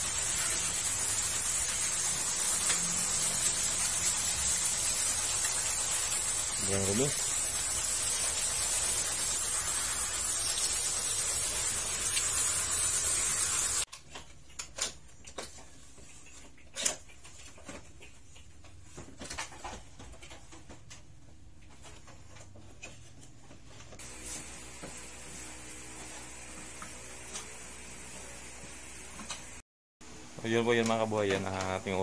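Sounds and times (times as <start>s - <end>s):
hose water jet hissing: 0.0s - 13.9s, 24.0s - 29.6s.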